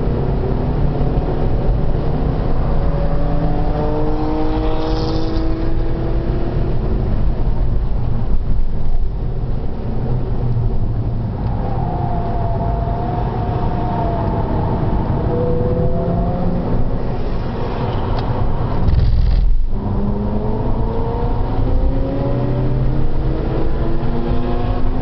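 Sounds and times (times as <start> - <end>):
car engine revving: 1.4 - 6.4.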